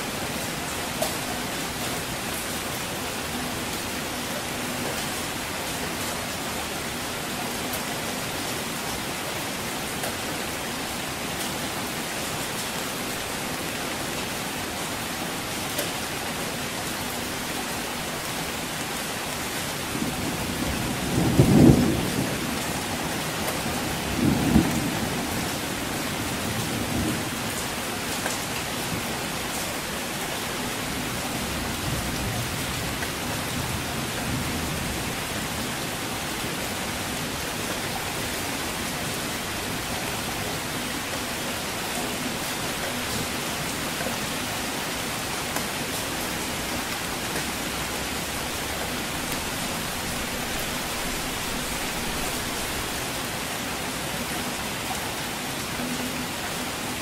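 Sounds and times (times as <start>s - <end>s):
heavy rain falling: 0.0s - 57.0s.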